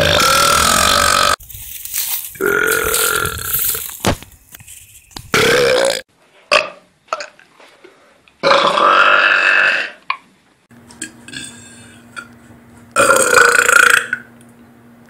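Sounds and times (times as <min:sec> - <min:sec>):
man belching: 0:00.0 - 0:01.4, 0:02.4 - 0:03.9, 0:05.4 - 0:06.8, 0:08.4 - 0:10.0, 0:13.0 - 0:14.3.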